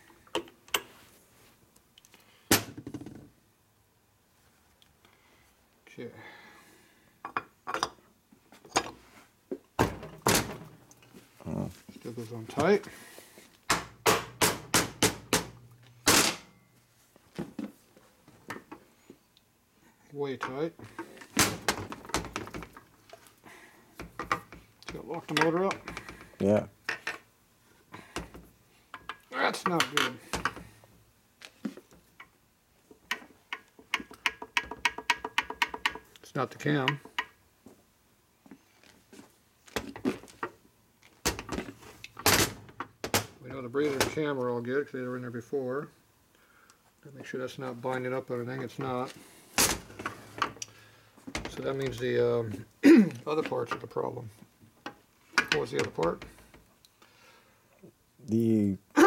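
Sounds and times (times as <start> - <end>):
sharp metal clicks and knocks: 33.0 - 37.4, 54.8 - 56.6.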